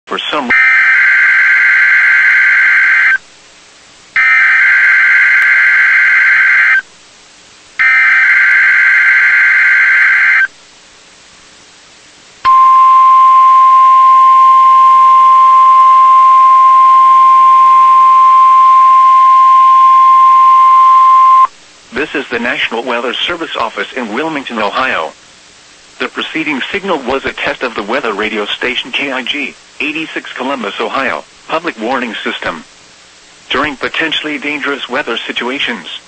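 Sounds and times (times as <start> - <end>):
steady warning alarm tone: 4.2 - 6.8, 7.8 - 10.5, 12.5 - 21.5.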